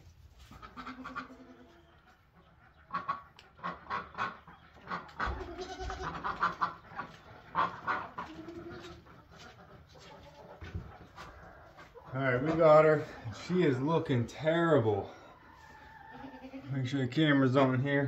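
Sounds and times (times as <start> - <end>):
goat bleating: 0.6 - 1.9, 5.1 - 6.6, 7.6 - 9.1, 15.9 - 16.9.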